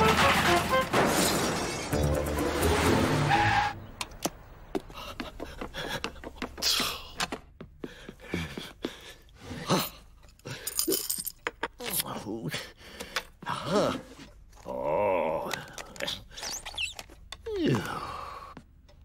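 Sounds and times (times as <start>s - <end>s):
cartoon background music: 0.0s - 3.8s
car traffic noise: 2.0s - 6.4s.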